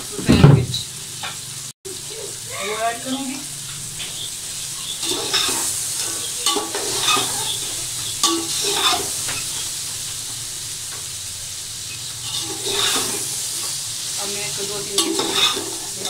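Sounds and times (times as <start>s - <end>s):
food sizzling in a metal pot: 0.0s - 16.0s
metal spatula scraping a pot: 4.0s - 9.7s, 12.0s - 13.8s, 14.7s - 16.0s.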